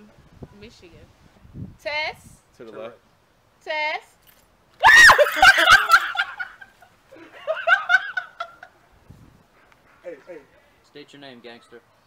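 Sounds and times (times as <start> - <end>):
woman crying out: 4.8 - 5.8
woman laughing: 4.8 - 8.7.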